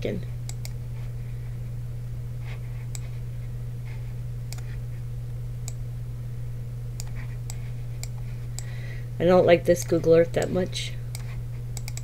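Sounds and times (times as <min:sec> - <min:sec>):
steady low hum: 0:00.0 - 0:12.0
computer mouse clicks: 0:00.5 - 0:00.8, 0:04.5 - 0:04.7, 0:07.0 - 0:08.7, 0:09.8 - 0:12.0.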